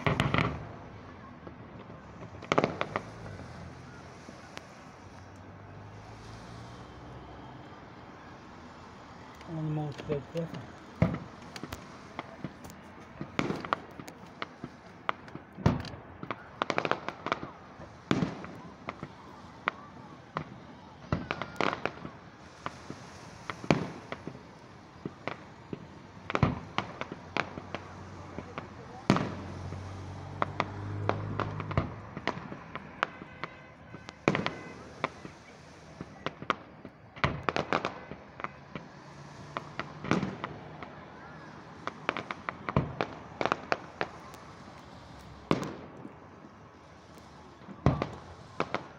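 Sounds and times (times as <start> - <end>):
fireworks bangs: 0.0 - 48.9
crackling pops: 1.4 - 19.8, 20.4 - 48.9
sharp pops: 9.3 - 17.3.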